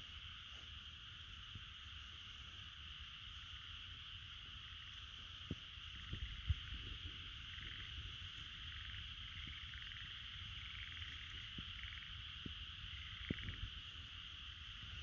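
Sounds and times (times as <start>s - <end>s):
chorus of calling animals: 4.2s - 15.0s.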